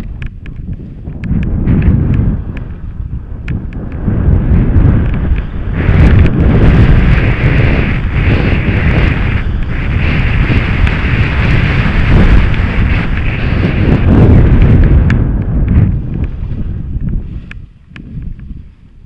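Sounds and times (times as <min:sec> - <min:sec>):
skis scraping over snow: 0:00.0 - 0:19.0
wind buffeting microphone: 0:00.0 - 0:19.0.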